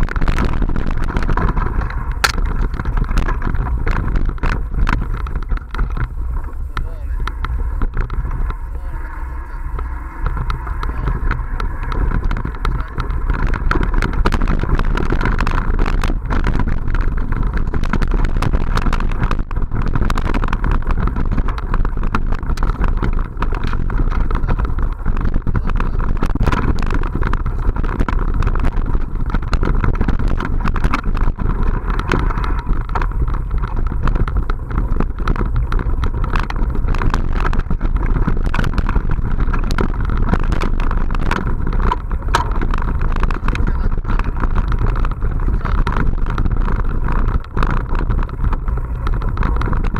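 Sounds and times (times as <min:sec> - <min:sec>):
bike knocking and rattling: 0:00.0 - 0:49.9
bike tyres on dirt: 0:00.0 - 0:49.9
wind rumble on microphone: 0:00.0 - 0:49.9.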